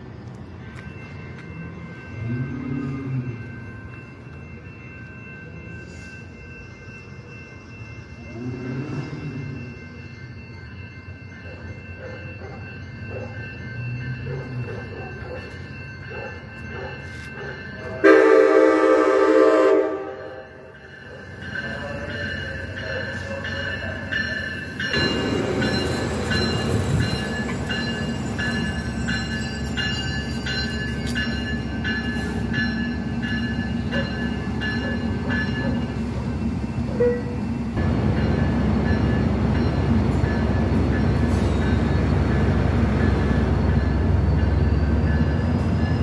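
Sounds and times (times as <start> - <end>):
train cars rumbling past: 0.0 - 46.0
train horn blast: 18.0 - 20.4.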